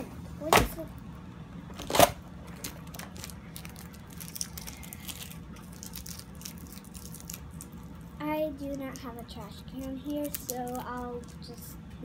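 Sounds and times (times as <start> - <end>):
packing tape crinkling and clicking: 1.7 - 7.8.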